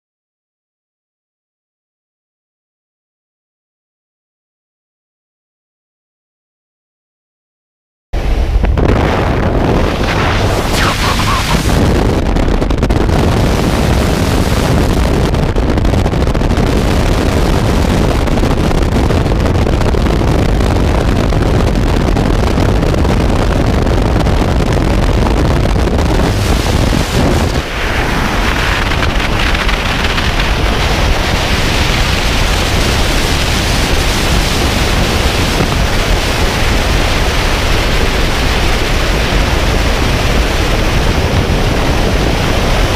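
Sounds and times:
aircraft engine: 0:08.2 - 0:24.6, 0:25.2 - 0:42.9
freefall wind rush: 0:08.2 - 0:42.9
wind noise on microphone: 0:08.2 - 0:42.9.

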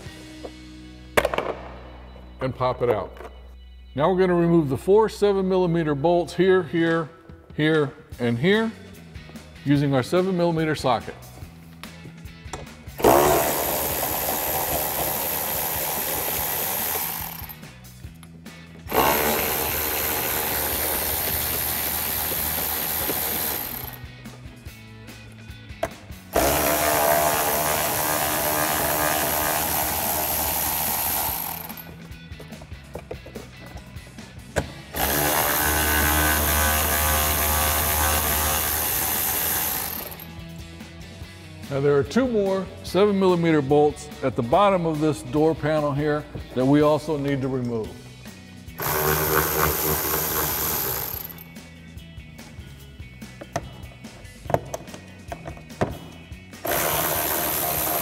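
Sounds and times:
electric ratchet spinning bolts: 0:13.0 - 0:17.6, 0:18.9 - 0:24.0, 0:26.3 - 0:32.0, 0:34.9 - 0:40.3, 0:48.8 - 0:51.5, 0:56.6 - 0:58.0.

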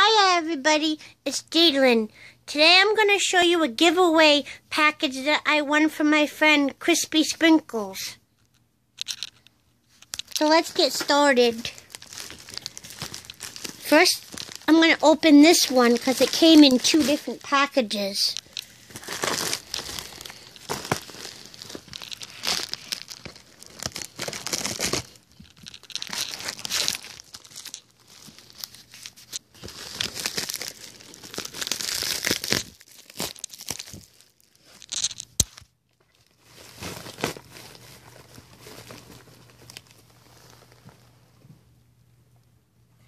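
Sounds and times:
paper and packaging crinkling: 0:09.0 - 0:41.1
envelope being torn open: 0:10.2 - 0:17.4, 0:18.4 - 0:39.9.

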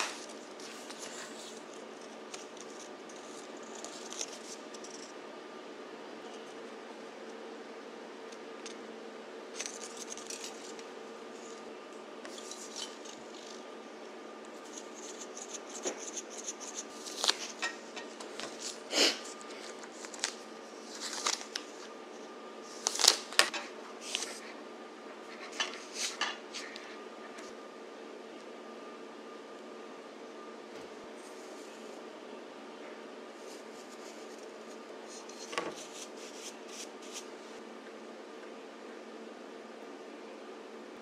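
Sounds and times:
faint hum: 0:00.0 - 0:41.0
plastic wrapping crinkling: 0:18.3 - 0:21.9, 0:22.7 - 0:24.4.

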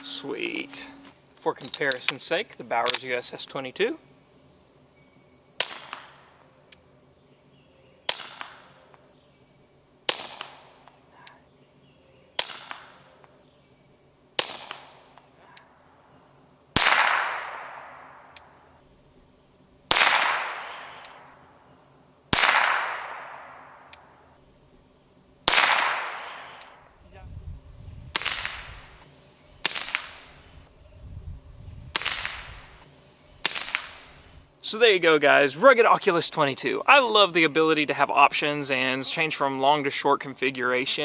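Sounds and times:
suppressed pistol shots: 0:05.6 - 0:06.3, 0:08.0 - 0:08.8, 0:10.1 - 0:10.8, 0:12.4 - 0:13.1, 0:14.4 - 0:15.2, 0:16.8 - 0:18.6, 0:19.9 - 0:21.3, 0:22.3 - 0:24.1, 0:25.4 - 0:26.8, 0:28.2 - 0:29.0, 0:29.6 - 0:30.4, 0:31.9 - 0:32.8, 0:33.4 - 0:34.2.

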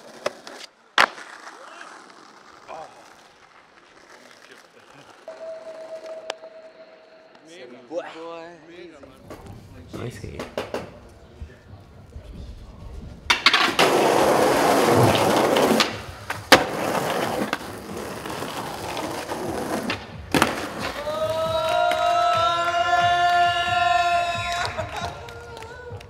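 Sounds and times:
skateboard landing slap: 0:00.0 - 0:01.6, 0:13.3 - 0:17.7
skateboard wheels rolling on concrete: 0:00.0 - 0:07.4, 0:09.0 - 0:26.0
high-pitched whine: 0:05.3 - 0:07.8.

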